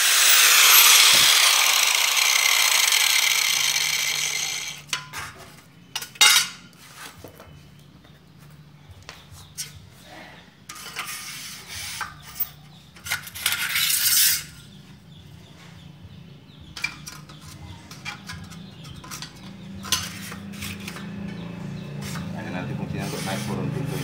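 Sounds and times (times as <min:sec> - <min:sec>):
metal strips clinking on tile floor: 0:12.3 - 0:14.6.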